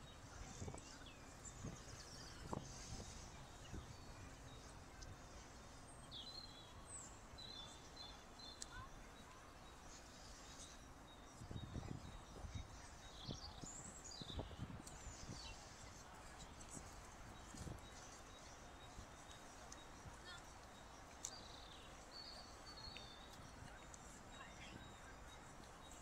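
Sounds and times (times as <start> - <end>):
wind rumble on microphone: 0.0 - 6.0, 10.4 - 20.3.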